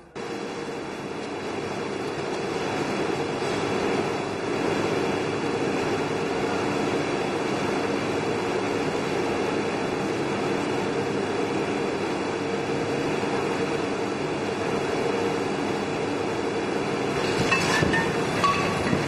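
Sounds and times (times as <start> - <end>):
factory machinery running: 0.0 - 19.0
clattering knocks: 17.2 - 19.0.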